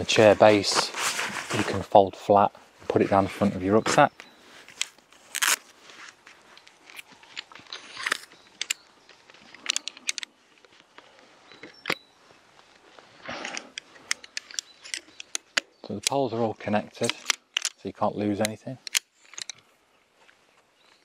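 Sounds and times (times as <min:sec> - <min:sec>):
strap rustling and scraping: 0:00.0 - 0:15.7
camping chair poles clicking: 0:03.7 - 0:19.7.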